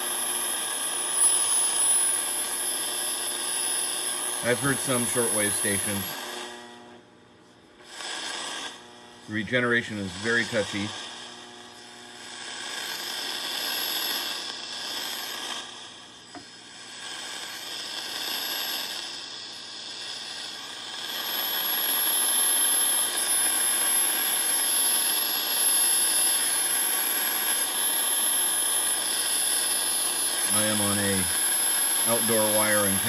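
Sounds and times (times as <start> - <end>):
shortwave radio static hiss: 0.0 - 7.0, 7.6 - 33.0
thin high whistle: 7.8 - 32.8.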